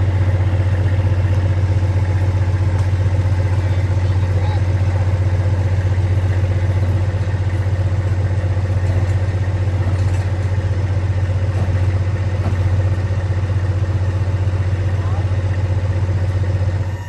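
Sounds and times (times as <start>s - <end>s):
diesel truck engine running: 0.0s - 17.0s.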